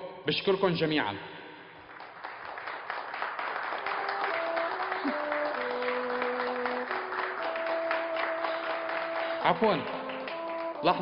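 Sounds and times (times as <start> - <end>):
audience applauding: 1.8 - 11.0
slow melody of long notes: 3.9 - 11.0.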